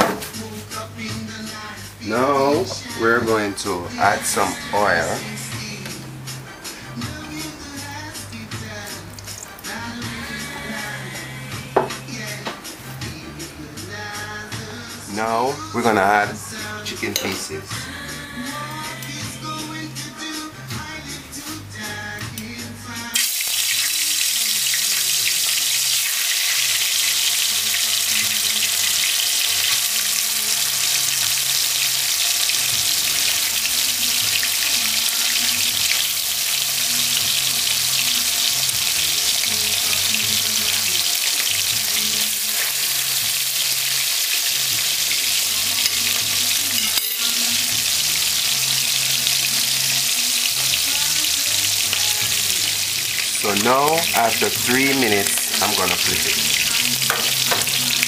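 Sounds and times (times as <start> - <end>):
chicken sizzling in hot oil: 23.1 - 58.0.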